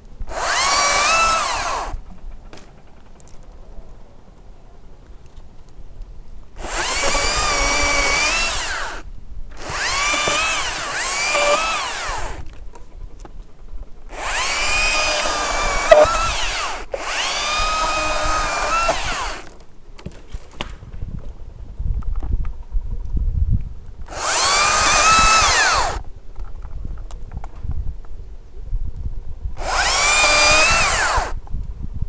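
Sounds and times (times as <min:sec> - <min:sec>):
chainsaw motor whine cutting limbs: 0:00.3 - 0:03.0, 0:06.6 - 0:12.6, 0:14.1 - 0:19.6, 0:24.1 - 0:26.0, 0:29.6 - 0:31.4.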